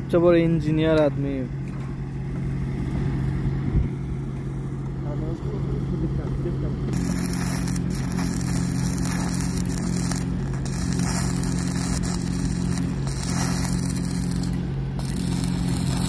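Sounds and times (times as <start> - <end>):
low machine hum: 0.0 - 16.0
welding arc crackling: 6.9 - 16.0.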